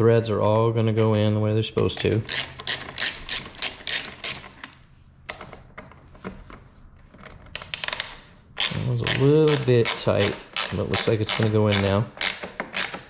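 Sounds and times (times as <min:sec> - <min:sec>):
ratcheting screwdriver clicking: 0:02.0 - 0:04.6, 0:07.6 - 0:13.0.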